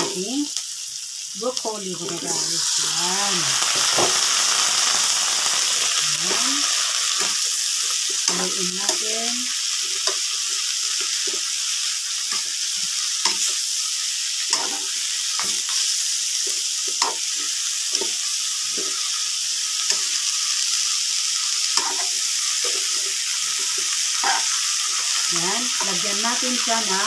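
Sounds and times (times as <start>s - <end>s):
vegetables sizzling in a pan: 0.0s - 27.0s
metal tongs clinking on pan: 14.5s - 15.6s.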